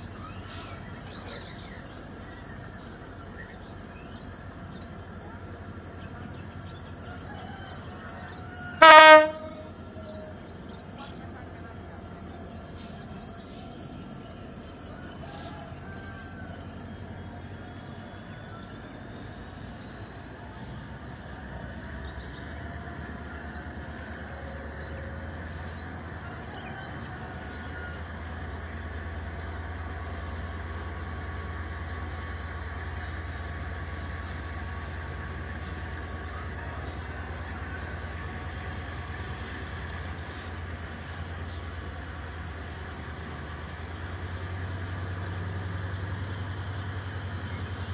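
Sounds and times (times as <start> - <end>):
diesel locomotive engine idling: 0.0 - 47.9
insects buzzing: 0.0 - 47.9
rapid insect chirps: 0.0 - 47.9.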